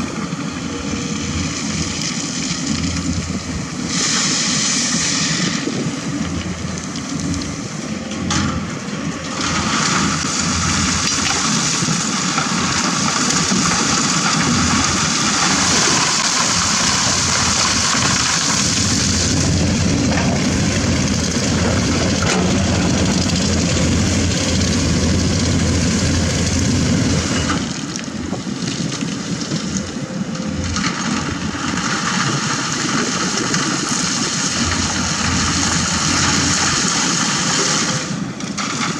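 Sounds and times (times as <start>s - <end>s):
excavator diesel engine working: 0.0s - 38.9s
stones pouring into truck: 9.4s - 20.5s.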